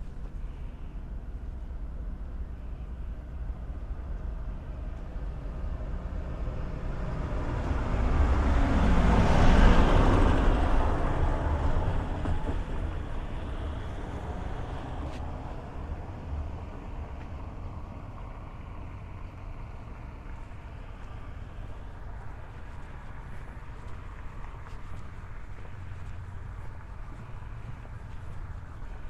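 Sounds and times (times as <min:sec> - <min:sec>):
vehicle driving past: 0:05.4 - 0:29.0.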